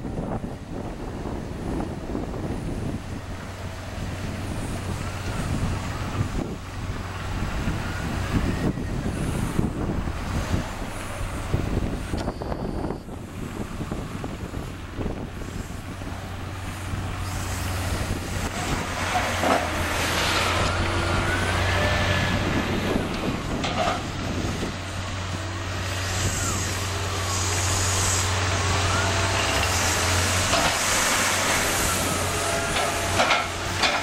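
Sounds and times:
wheel loader diesel engine: 0.0 - 34.0
wavering whine: 16.7 - 23.5.

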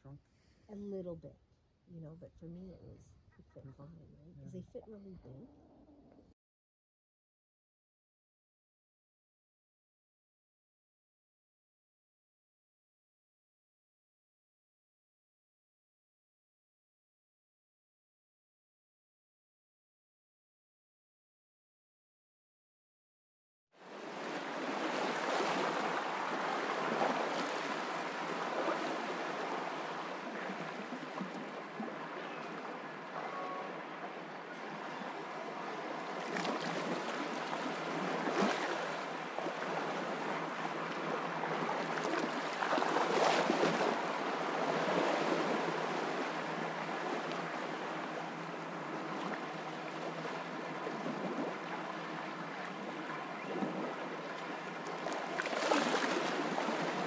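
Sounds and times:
waves washing on rocky shore: 23.9 - 52.4.

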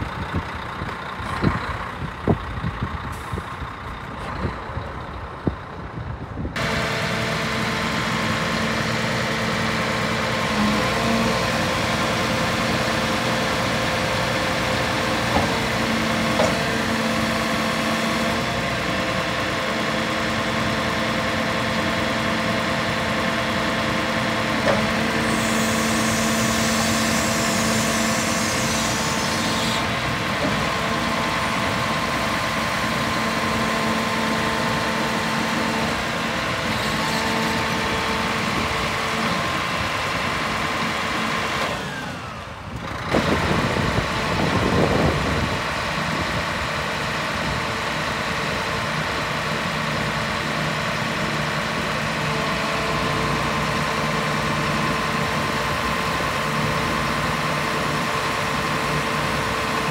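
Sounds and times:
diesel truck engine idling: 0.0 - 59.9.

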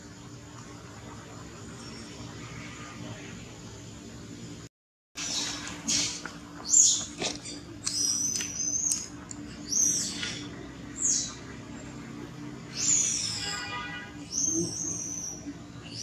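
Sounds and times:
birds chirping and whistling: 5.2 - 16.0.

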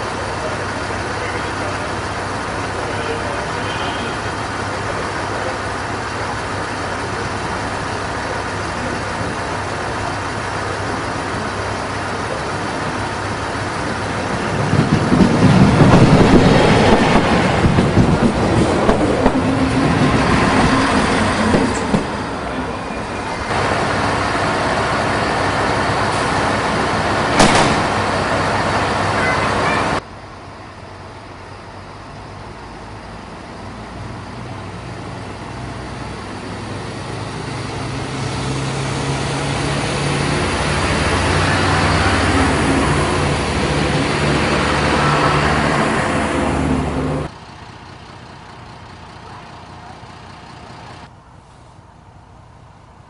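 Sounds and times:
diesel railcar passing: 0.0 - 53.0
station platform background noise: 0.0 - 53.0.

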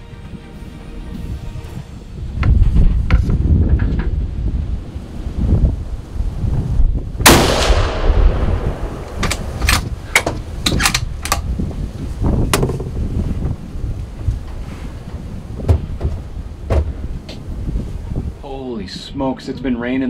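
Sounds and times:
wind rumble on microphone: 0.0 - 20.0
rifle shot: 7.2 - 10.0
sharp clicks and knocks: 9.0 - 11.5.

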